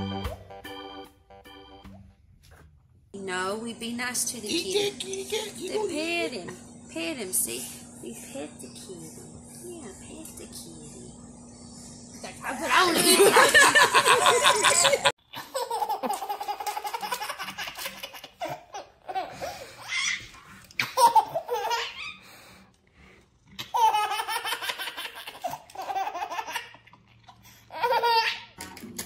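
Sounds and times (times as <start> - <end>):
baby laughing: 13.0 - 22.2, 23.6 - 27.0, 27.7 - 28.6.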